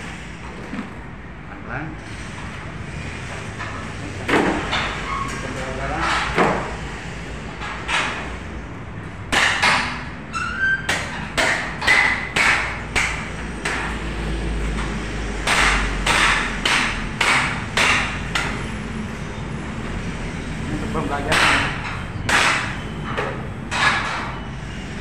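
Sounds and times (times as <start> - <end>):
cleaver chopping meat and bone: 9.3 - 10.0, 10.9 - 14.1, 15.4 - 18.6, 21.3 - 22.8.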